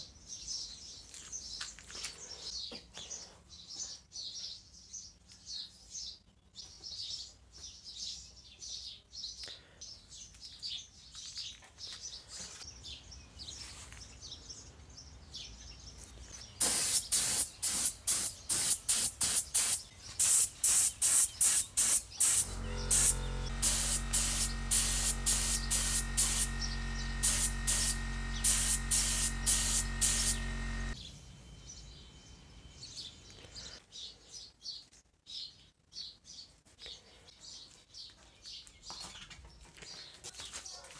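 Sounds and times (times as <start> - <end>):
paint spray gun hissing: 16.6 - 31.0
birds chirping: 19.6 - 40.8
low motor hum: 22.2 - 31.1.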